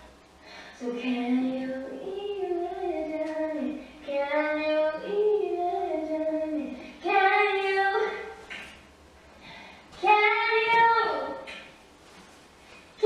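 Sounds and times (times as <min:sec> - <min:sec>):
woman singing unaccompanied: 0:00.8 - 0:08.4.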